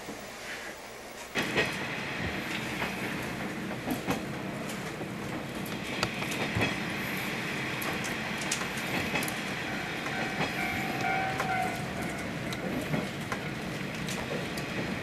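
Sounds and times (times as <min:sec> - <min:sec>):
train running rumble: 0:00.0 - 0:15.0
wheels clicking over rail joints: 0:07.6 - 0:15.0.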